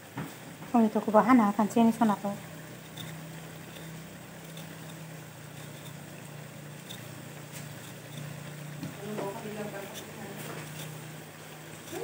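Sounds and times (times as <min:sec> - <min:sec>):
curry simmering with faint sizzle: 0:00.0 - 0:12.0
steady low hum: 0:00.0 - 0:12.0
small ticks: 0:02.4 - 0:09.0.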